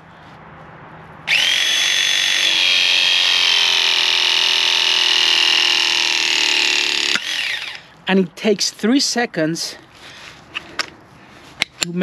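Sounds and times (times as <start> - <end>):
press tool motor whine: 1.3 - 7.9.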